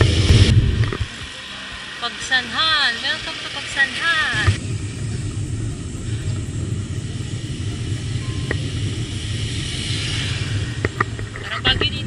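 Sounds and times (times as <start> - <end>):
wind buffeting microphone: 0.0 - 1.4, 4.2 - 12.0
road and tyre noise: 0.0 - 12.0.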